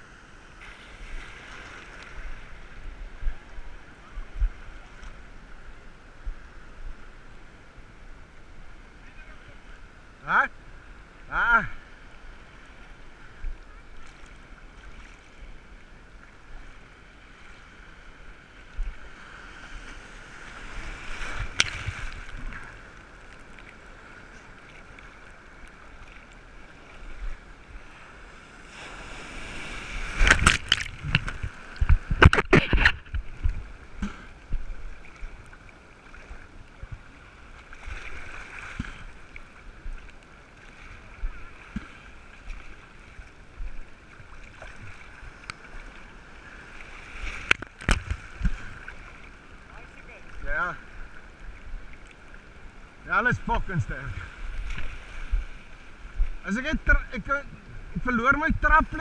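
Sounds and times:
seawater sloshing and splashing: 18.6s - 52.4s.

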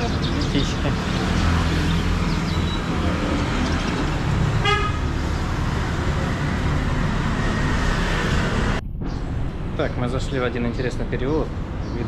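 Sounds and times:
street traffic: 0.0s - 12.0s
vehicle horn beep: 4.6s - 5.0s.

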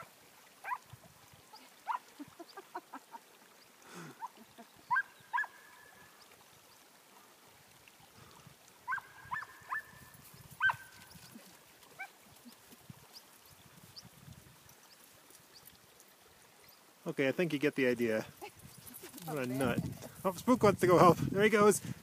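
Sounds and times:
distant dog barking and yelping: 0.0s - 0.9s, 1.8s - 2.2s, 4.2s - 6.0s, 8.8s - 11.0s, 11.9s - 12.2s.

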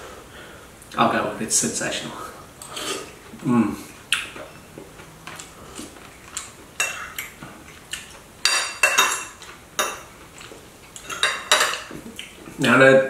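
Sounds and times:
cutlery clinking on ceramic bowl: 8.4s - 10.1s, 11.0s - 12.0s.

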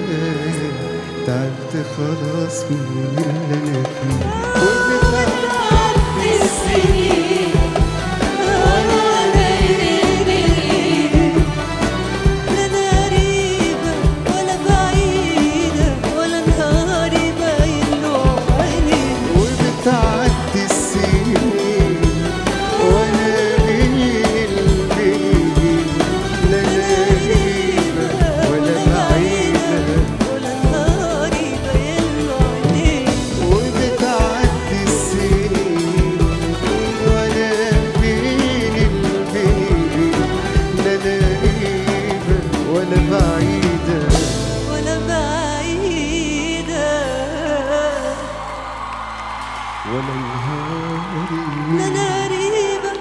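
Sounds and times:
pop orchestra playing: 0.0s - 53.0s
steady drum beat: 2.2s - 45.3s.

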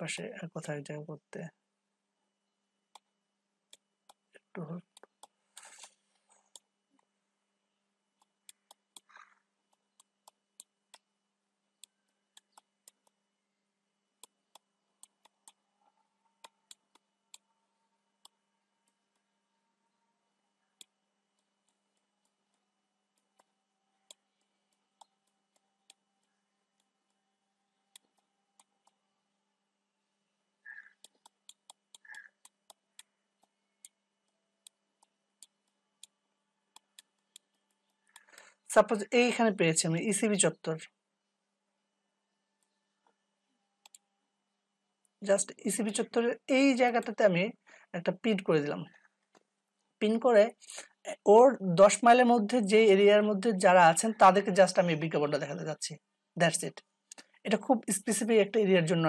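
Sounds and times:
faint steady hum: 0.0s - 59.0s
computer mouse clicking: 11.8s - 13.2s, 14.2s - 15.6s, 24.1s - 26.9s, 30.7s - 34.0s, 34.6s - 38.6s, 43.8s - 44.0s.

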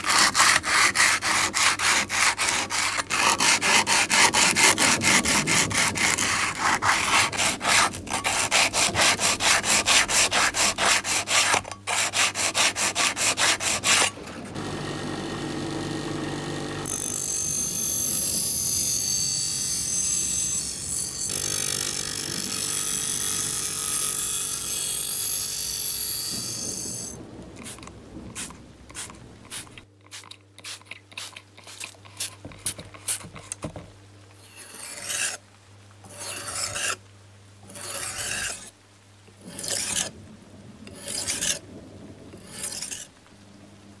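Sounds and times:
sandpaper rubbing strokes: 0.0s - 14.2s, 27.6s - 33.6s, 36.1s - 37.0s, 37.7s - 38.7s, 41.0s - 41.6s, 42.4s - 43.1s
steady rushing noise: 27.1s - 29.9s.

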